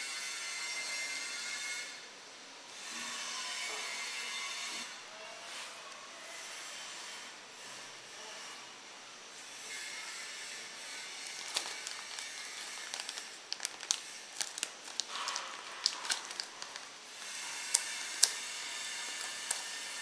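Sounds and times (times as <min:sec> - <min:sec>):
plastic wrapping crinkling: 0:11.0 - 0:20.0.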